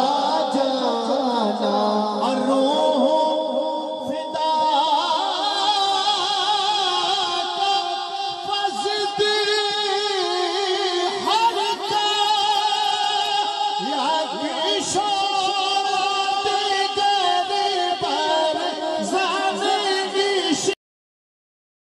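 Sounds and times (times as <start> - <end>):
person singing devotional song: 0.0 - 20.8.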